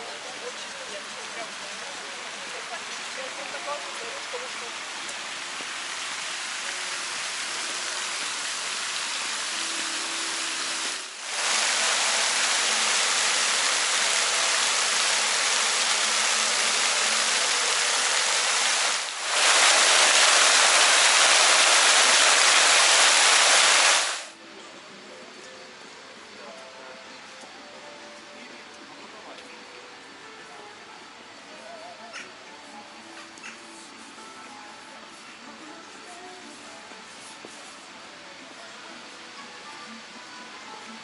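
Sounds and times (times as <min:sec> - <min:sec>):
fountain water splashing into a pool: 0:00.2 - 0:24.4
quiet open-air background: 0:24.3 - 0:41.0.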